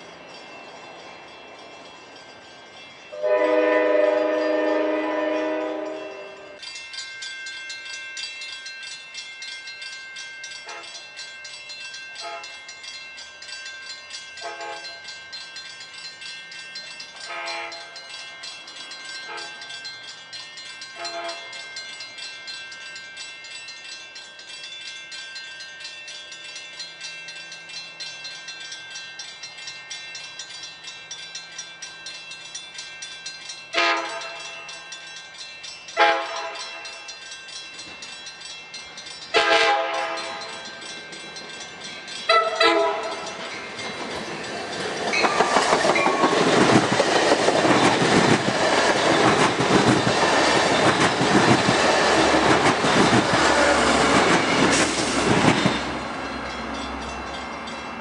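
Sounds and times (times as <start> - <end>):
locomotive horn blasts: 3.2 - 6.6, 12.2 - 12.6, 14.4 - 15.0, 17.3 - 18.0, 21.0 - 21.5, 33.8 - 34.5, 36.0 - 36.8, 39.4 - 40.5, 42.3 - 43.2.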